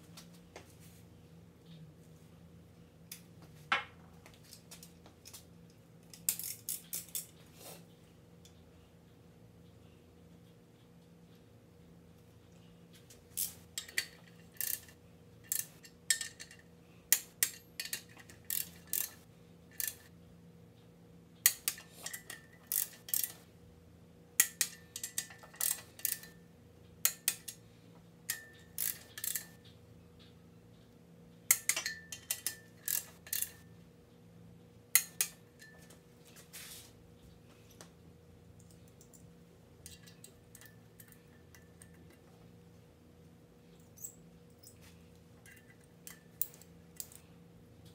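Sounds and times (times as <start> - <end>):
ratcheting torque wrench clicking: 13.4 - 19.2, 19.8 - 20.1, 21.5 - 23.4, 24.4 - 26.3, 28.3 - 29.6, 31.5 - 33.6.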